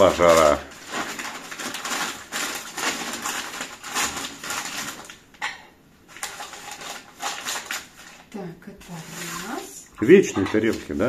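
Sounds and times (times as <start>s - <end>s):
newspaper rustling and crumpling: 0.0s - 5.3s, 6.1s - 11.0s
dishes clinking together: 5.4s - 5.8s.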